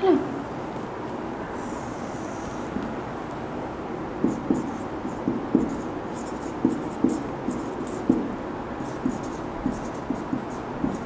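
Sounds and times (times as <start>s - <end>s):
marker writing on whiteboard: 4.2s - 11.0s.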